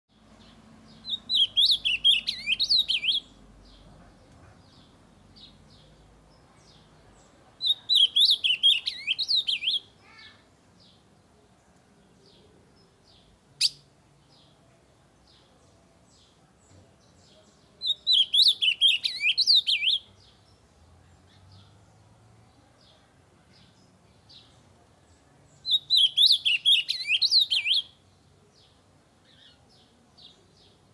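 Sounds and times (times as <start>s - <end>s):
bird singing warbling phrases: 0.1s - 3.9s, 4.6s - 11.2s, 12.2s - 14.6s, 15.2s - 21.7s, 23.6s - 30.9s.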